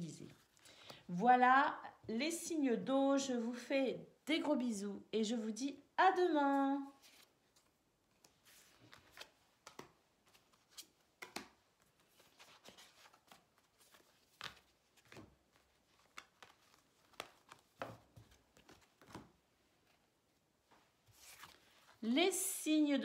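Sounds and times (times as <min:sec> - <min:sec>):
cards slapping and swishing: 0:07.0 - 0:19.4.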